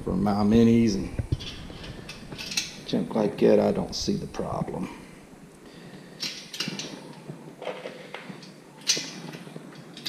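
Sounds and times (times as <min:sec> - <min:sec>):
handling noise: 0:00.0 - 0:10.0
bolts clinking on metal frame: 0:01.3 - 0:03.0, 0:06.2 - 0:07.0.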